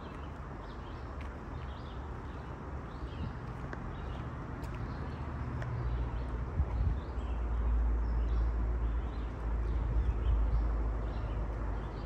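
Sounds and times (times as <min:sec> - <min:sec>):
small birds chirping: 0:00.0 - 0:12.0
wind buffeting microphone: 0:06.2 - 0:07.3.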